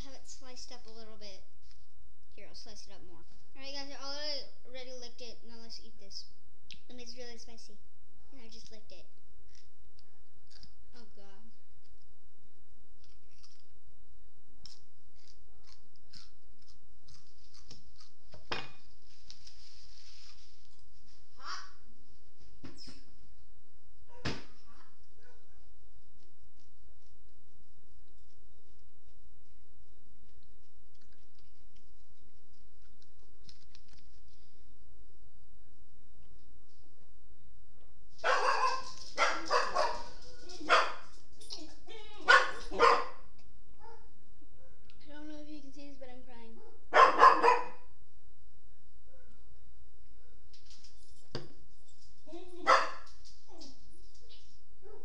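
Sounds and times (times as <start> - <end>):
pepper being chewed crunching: 9.4 - 10.8, 13.0 - 13.7, 14.6 - 19.5
dog barking: 24.1 - 25.6, 38.2 - 41.1, 42.2 - 44.9, 46.6 - 47.9, 52.6 - 53.7.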